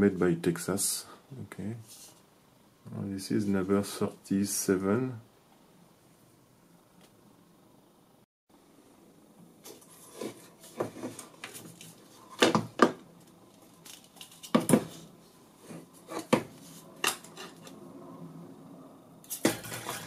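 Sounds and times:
metal cover clanking: 0:19.3 - 0:20.0.

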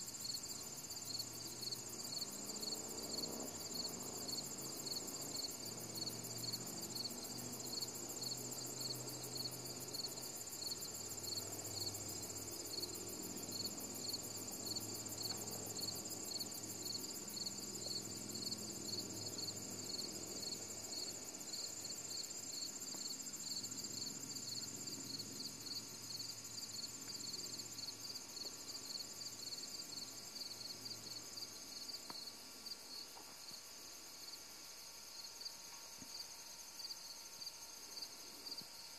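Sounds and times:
insects trilling: 0:00.0 - 0:33.6
insect chirping: 0:00.0 - 0:38.9.

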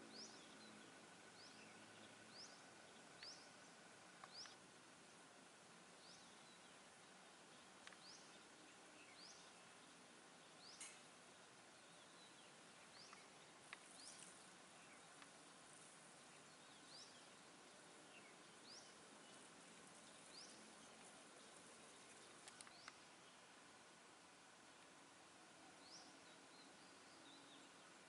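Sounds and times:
background hiss: 0:00.0 - 0:28.0
faint bird chirping: 0:00.0 - 0:28.0
faint clicks: 0:02.6 - 0:03.4, 0:04.1 - 0:04.6, 0:07.8 - 0:08.3, 0:12.9 - 0:14.5, 0:15.1 - 0:15.5, 0:19.3 - 0:23.1.

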